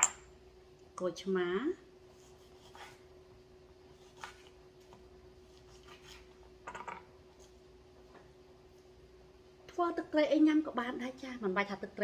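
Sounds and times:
faint steady hum: 0.0 - 12.0
knife cutting on cutting board: 2.2 - 3.1, 3.9 - 4.6.

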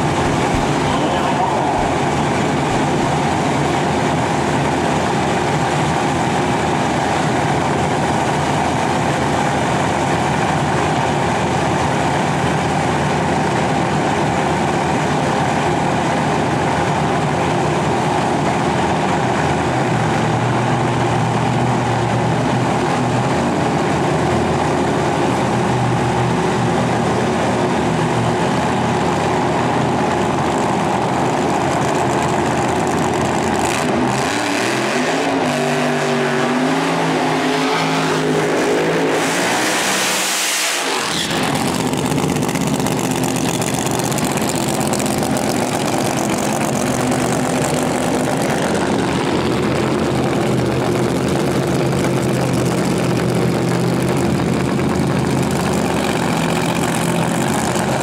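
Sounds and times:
deeper engine note: 0.0 - 12.9, 40.8 - 58.0
race car engines: 0.0 - 58.0.

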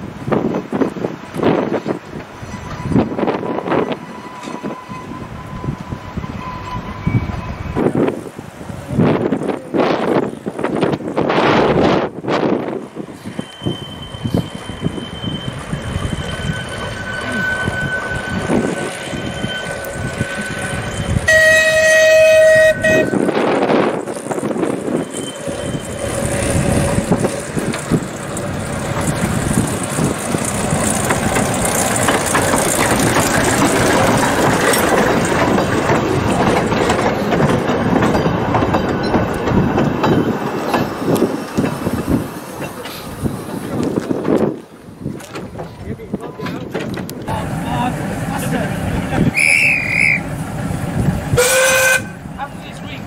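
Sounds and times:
train running by: 0.0 - 53.0
train whistle blast: 16.6 - 19.7, 21.2 - 23.4, 49.3 - 50.3, 51.4 - 52.2.

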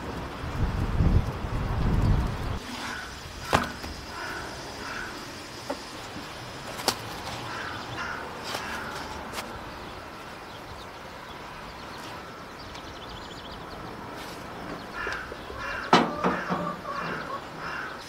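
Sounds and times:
wind rumbling on microphone: 0.0 - 5.0
bird calls: 2.5 - 18.0.

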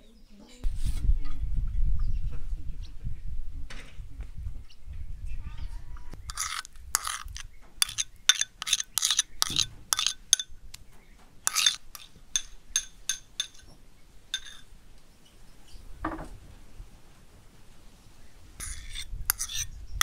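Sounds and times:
metal spoon clinking on porcelain bowls: 6.3 - 10.5, 11.5 - 14.7, 18.6 - 19.7.

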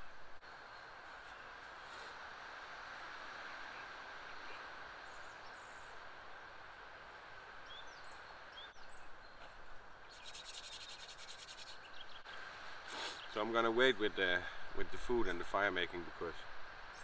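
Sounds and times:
low steady hiss: 0.0 - 17.0
bird chirps: 7.6 - 12.4.

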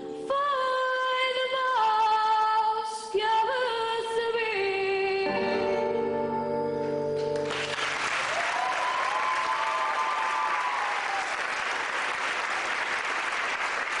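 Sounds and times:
audience applause: 7.4 - 14.0
drawn-out cheer: 8.0 - 12.0.

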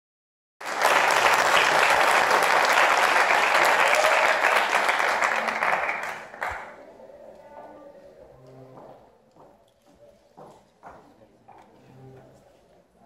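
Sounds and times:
audience applauding: 0.6 - 6.9.

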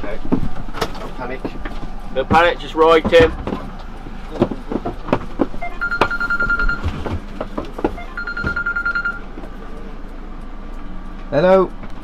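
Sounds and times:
phone ringing: 5.6 - 7.1, 8.0 - 9.3.

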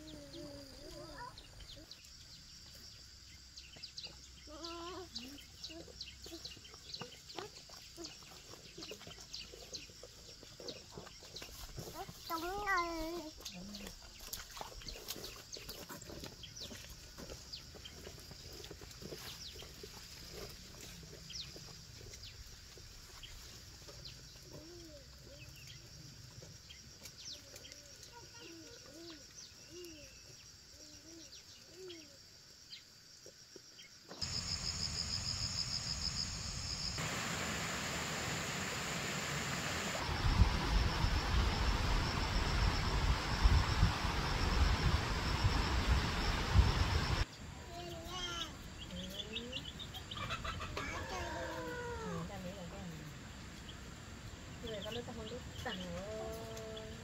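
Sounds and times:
steady hiss with pulsing tone: 34.2 - 47.3
chickens clucking: 49.9 - 51.3.

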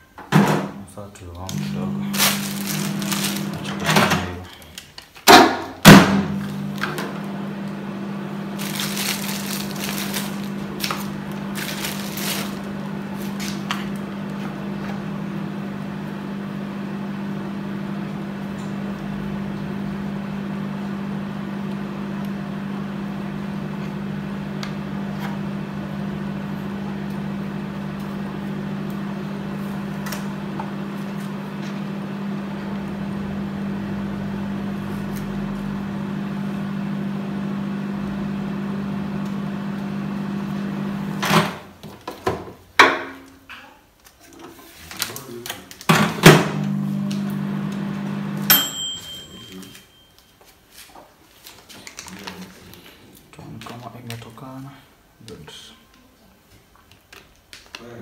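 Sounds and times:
kitchen appliance hum: 1.2 - 4.6, 5.8 - 42.0, 45.9 - 50.0.

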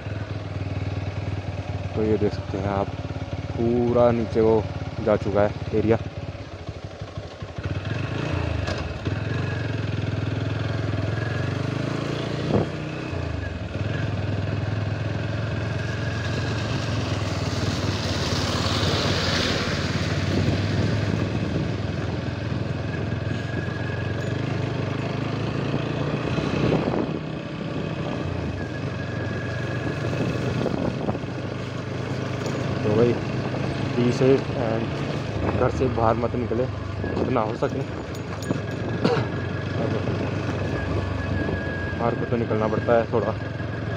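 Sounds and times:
motorcycle engine running: 0.0 - 43.9
wind noise: 12.3 - 12.9, 17.5 - 24.6, 25.5 - 31.6, 33.1 - 36.1, 36.8 - 42.2
tyre noise on wet road: 14.9 - 25.4.

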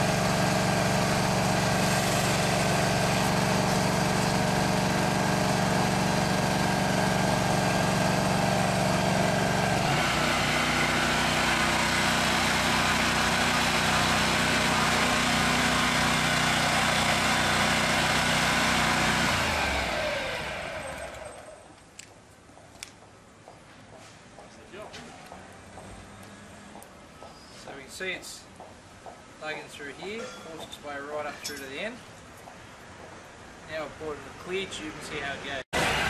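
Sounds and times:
small engine running: 0.0 - 21.6, 35.8 - 36.0.

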